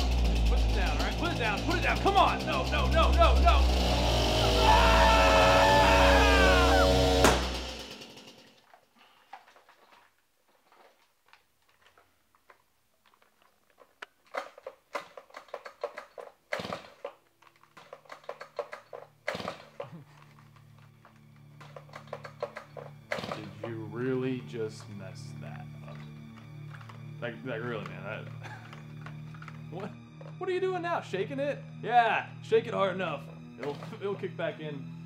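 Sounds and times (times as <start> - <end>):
chainsaw engine running: 0.0 - 8.6, 16.0 - 17.0, 18.4 - 20.8, 21.6 - 30.0
clicks and clatters of handling saw: 8.5 - 23.8, 25.8 - 30.4.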